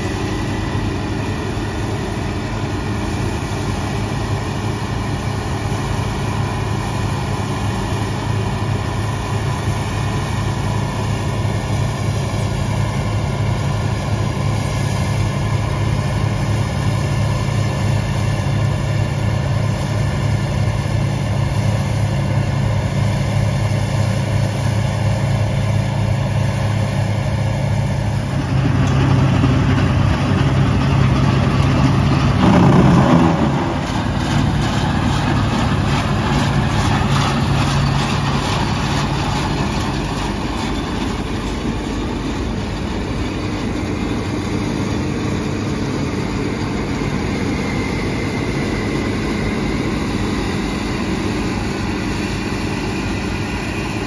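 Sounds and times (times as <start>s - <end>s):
diesel engine running under load: 0.0s - 54.0s
threshing machinery working: 27.0s - 54.0s.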